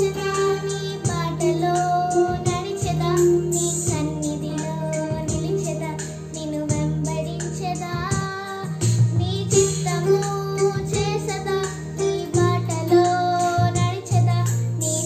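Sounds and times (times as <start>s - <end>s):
backing track with beat: 0.0s - 15.0s
girl singing: 0.0s - 15.0s.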